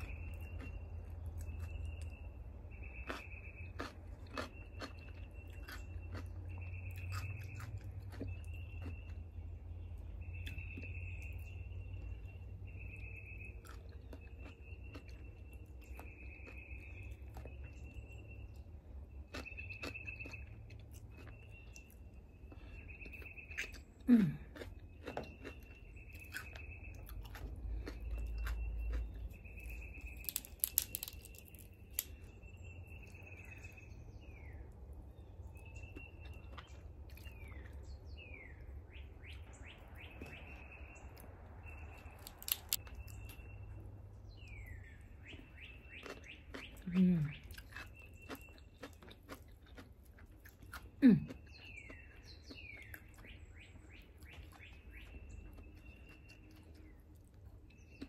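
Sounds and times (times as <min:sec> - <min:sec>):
songbirds whistling: 0:00.0 - 0:24.0, 0:24.6 - 0:58.0
chewing: 0:00.0 - 0:34.6, 0:35.2 - 0:43.8, 0:44.4 - 0:58.0
crab shell cracking: 0:30.1 - 0:32.2, 0:42.2 - 0:42.8.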